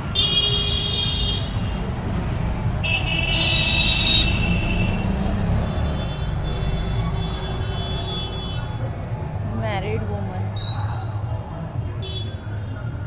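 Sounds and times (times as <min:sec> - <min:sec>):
vehicle horns honking: 0:00.0 - 0:01.8, 0:02.8 - 0:08.8
street traffic rumble: 0:00.0 - 0:13.0.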